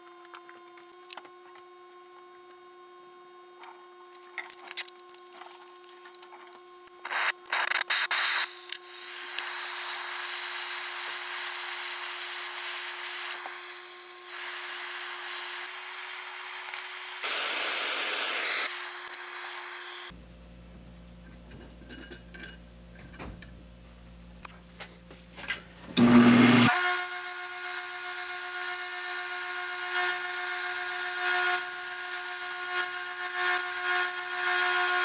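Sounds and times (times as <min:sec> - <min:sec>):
propane torch hissing: 0:08.1 - 0:20.1.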